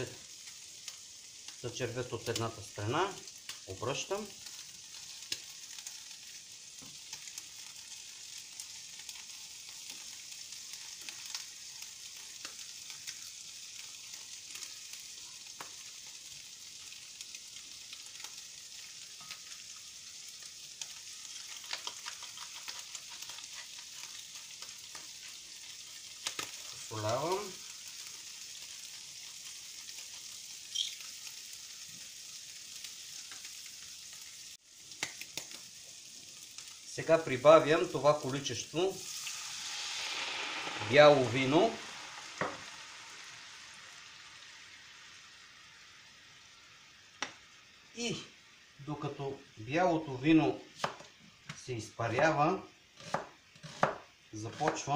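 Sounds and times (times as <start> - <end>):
prawns sizzling in hot oil: 0.0 - 54.9.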